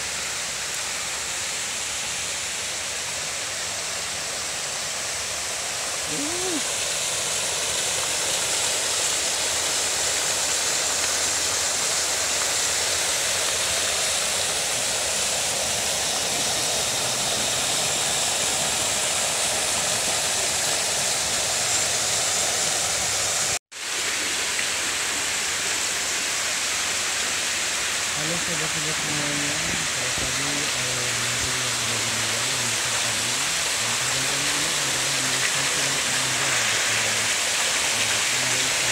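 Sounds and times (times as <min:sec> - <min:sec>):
fountain water splashing: 0:00.0 - 0:38.9.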